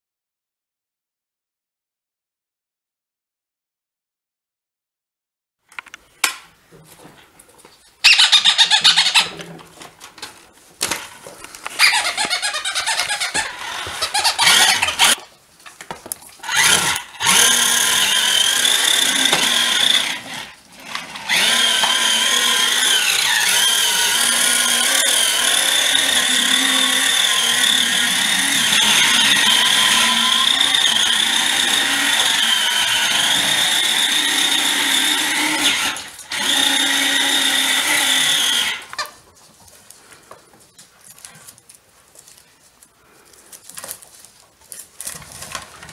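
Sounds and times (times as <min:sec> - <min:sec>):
toy car electric motor whining: 0:08.1 - 0:09.3, 0:11.8 - 0:15.2, 0:16.4 - 0:39.1.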